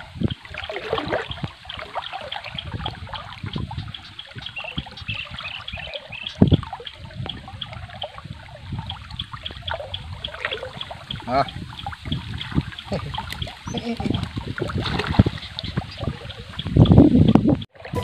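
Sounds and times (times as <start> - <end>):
water drips: 0.0 - 18.0
water trickling and splashing: 0.0 - 18.0.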